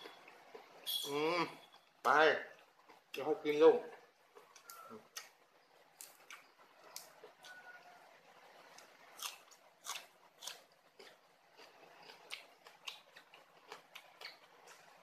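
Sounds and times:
chewing crisp raw vegetables: 3.8 - 7.6, 8.4 - 15.0.

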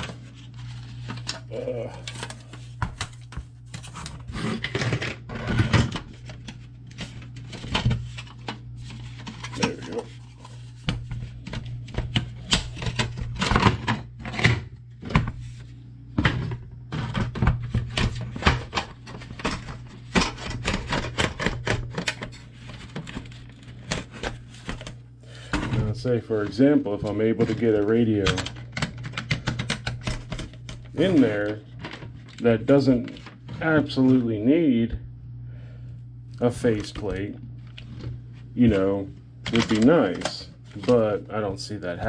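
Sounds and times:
sharp plastic clatters: 16.3 - 25.8, 26.4 - 32.4.

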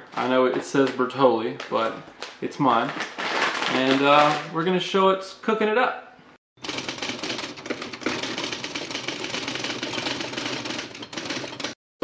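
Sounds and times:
rapid typewriter clacking: 6.6 - 11.8.

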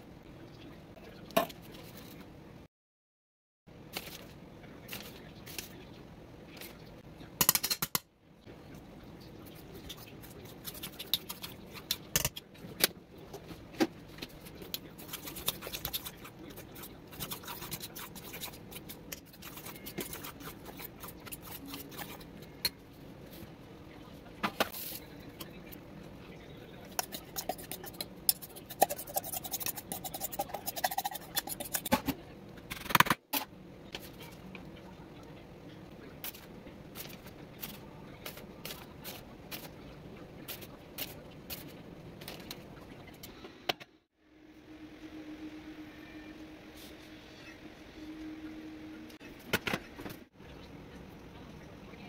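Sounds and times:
utensil scraping metal bowl: 15.0 - 22.7, 26.9 - 32.0.

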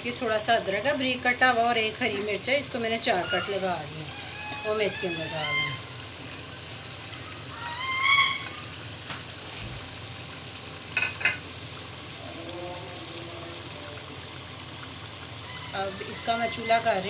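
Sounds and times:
gravy sizzling in a pot: 0.0 - 17.0
short rising pitched call: 7.5 - 8.6.

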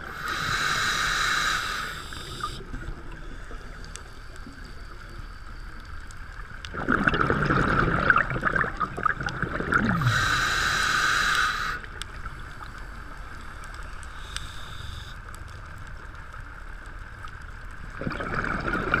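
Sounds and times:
regulator inhalation hiss: 0.0 - 6.1, 9.9 - 15.4
exhaled bubbles gurgling underwater: 6.4 - 12.9, 17.8 - 19.0.

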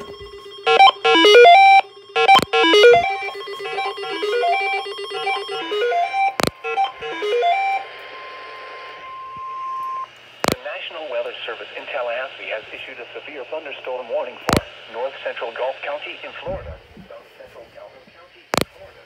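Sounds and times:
weather radio alert beeps: 0.0 - 7.9
steady alarm tone: 0.0 - 10.2
radio hiss: 6.3 - 19.0.

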